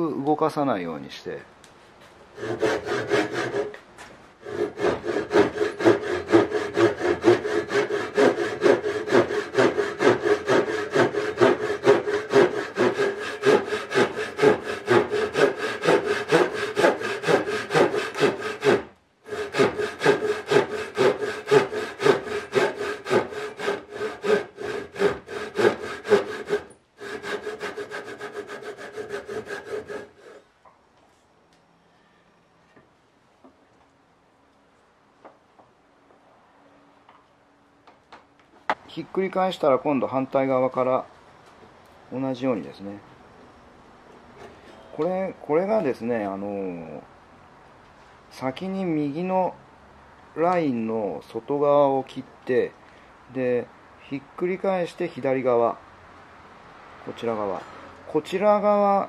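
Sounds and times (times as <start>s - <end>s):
hand saw ripping wood: 2.4s - 3.8s, 4.4s - 30.4s.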